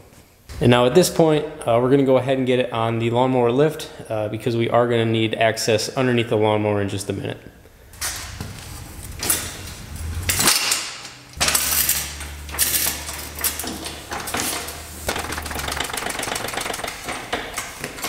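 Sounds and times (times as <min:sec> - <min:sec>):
low hum: 0:15.0 - 0:17.1.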